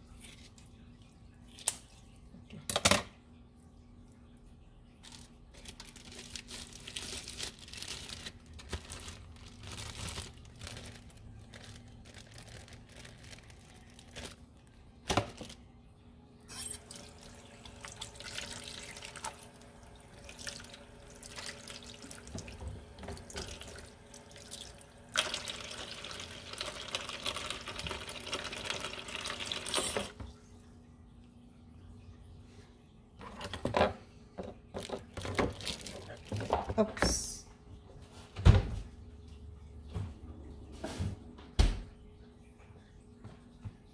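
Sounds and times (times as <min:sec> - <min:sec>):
tap water running into sink: 0:16.8 - 0:30.4.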